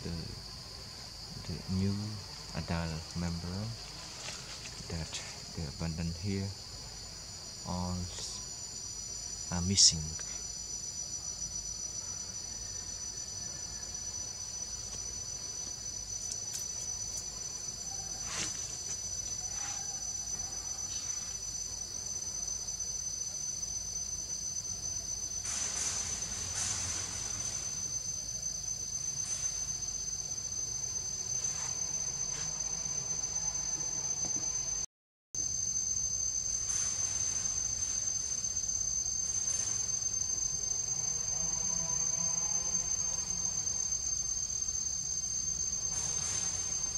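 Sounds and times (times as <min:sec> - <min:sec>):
forest insects chorus: 0:00.0 - 0:46.9
thin steady high tone: 0:00.0 - 0:46.9
faint rustles: 0:03.8 - 0:05.6.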